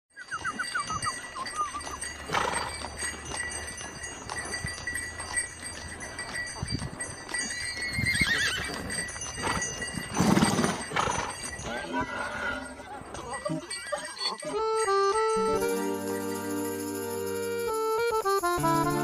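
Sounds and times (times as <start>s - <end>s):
mule whinny: 0.2s - 2.8s, 7.4s - 12.8s
bells ringing: 0.2s - 19.0s
hooves clip-clopping: 0.2s - 19.0s.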